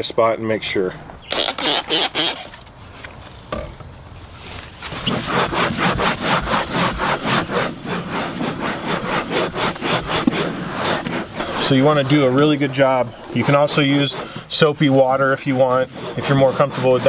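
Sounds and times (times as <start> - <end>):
cloth rubbing on textured wall: 4.3 - 17.0.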